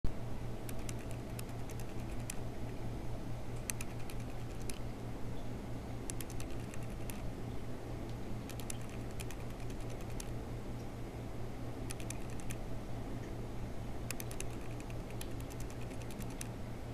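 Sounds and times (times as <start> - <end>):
steady low hum: 0.1 - 16.9
keyboard typing clicks: 0.6 - 2.8, 3.6 - 4.8, 6.0 - 7.3, 8.4 - 10.4, 11.8 - 12.6, 14.1 - 16.6.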